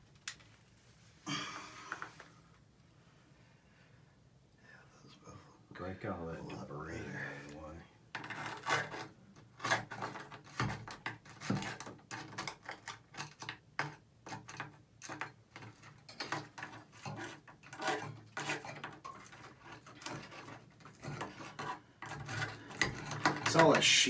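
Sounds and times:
metal tool scraping inside valve: 15.6 - 24.0.

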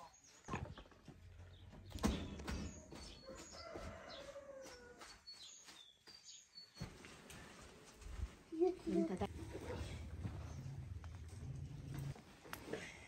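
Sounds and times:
small birds chirping: 0.0 - 7.1
rooster crowing: 3.3 - 5.1.

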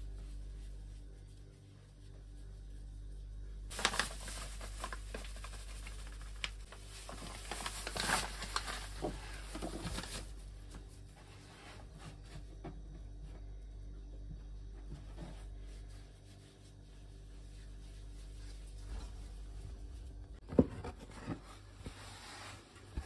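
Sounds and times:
plastic bag crinkling: 3.7 - 10.5.

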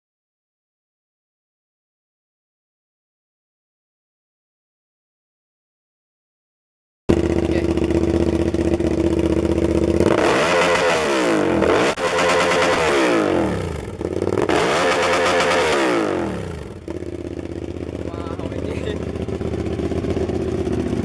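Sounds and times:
motorcycle engine revving: 7.1 - 21.0.

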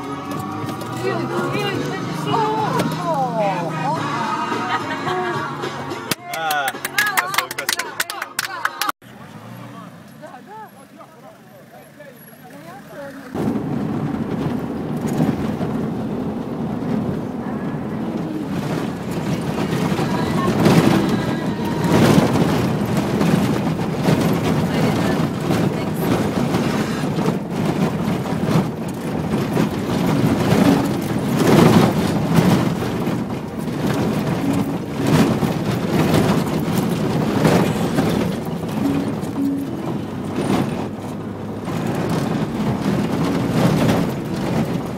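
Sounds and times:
thumps and rattles over bumps: 0.0 - 3.5, 12.6 - 44.9
engine and tyre noise: 0.0 - 8.2, 8.8 - 44.9.

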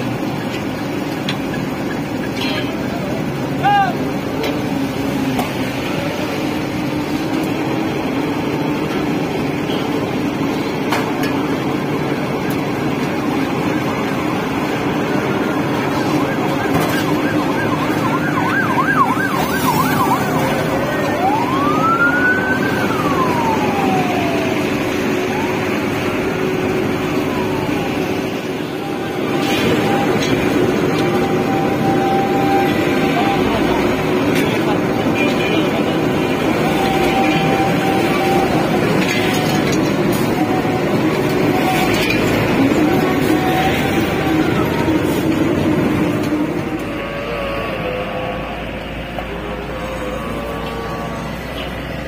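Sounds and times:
emergency siren: 0.0 - 52.0
heavy machinery engines running: 0.0 - 52.0.

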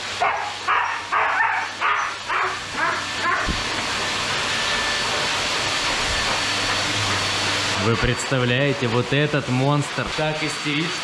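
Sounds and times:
dryer rushing hiss: 0.0 - 11.0
dog yelping and howling: 0.2 - 3.6.

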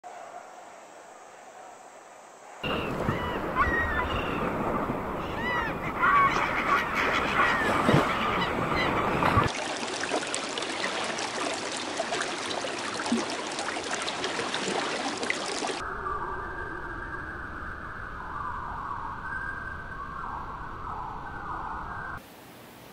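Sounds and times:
birds calling: 2.6 - 9.5.

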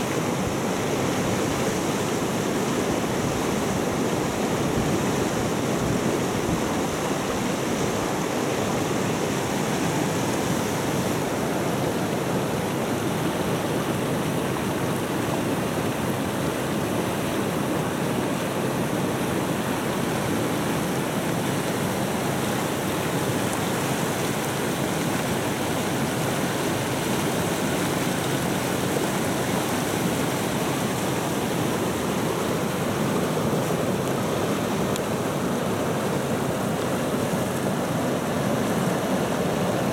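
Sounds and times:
river rushing over stones: 0.0 - 39.9.

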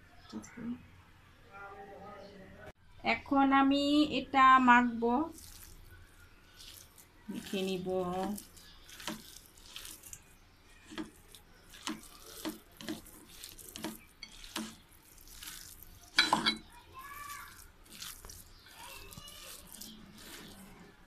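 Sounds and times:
hand squelching wet batter: 4.8 - 21.0.

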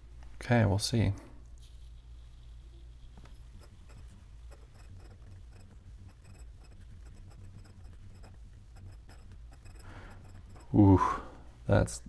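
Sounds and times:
pen nib scratching on paper: 1.6 - 10.8.

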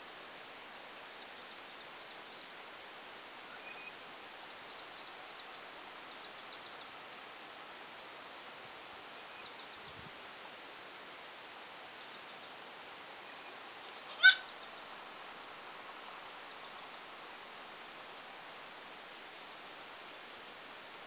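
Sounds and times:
loud high animal call: 14.1 - 14.5.

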